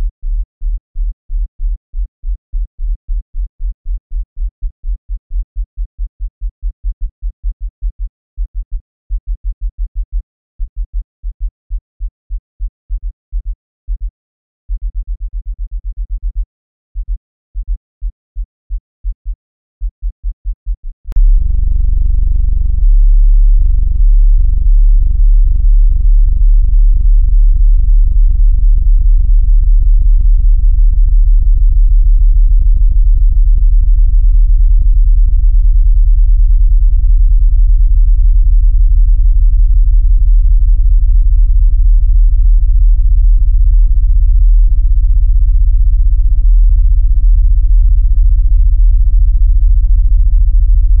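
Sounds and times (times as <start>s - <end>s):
low pulsing hum: 21.1s - 51.0s.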